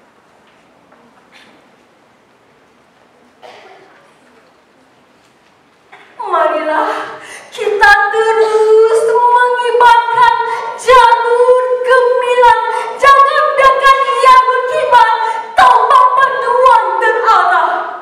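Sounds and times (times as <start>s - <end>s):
woman singing: 6.2s - 18.0s.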